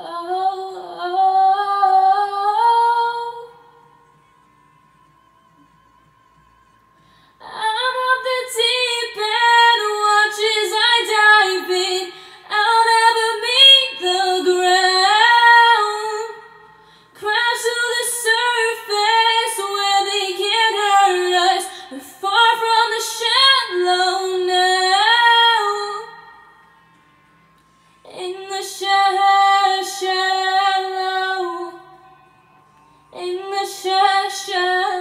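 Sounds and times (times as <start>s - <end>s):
woman singing unaccompanied: 0.0s - 3.8s, 7.4s - 26.4s, 28.0s - 32.0s, 33.1s - 35.0s
singer breathing: 7.0s - 7.4s, 12.1s - 12.5s, 16.7s - 17.2s.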